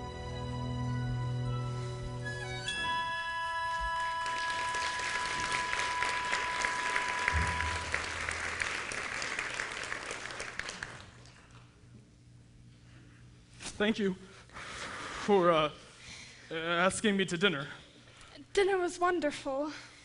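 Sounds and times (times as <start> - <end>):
music held note: 2.7 - 8.9
audience applauding: 3.9 - 11.6.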